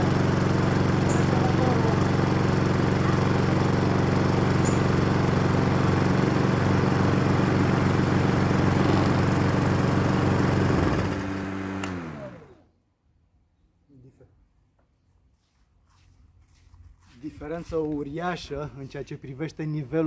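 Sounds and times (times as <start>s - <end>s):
lawn mower engine running: 0.0s - 12.6s.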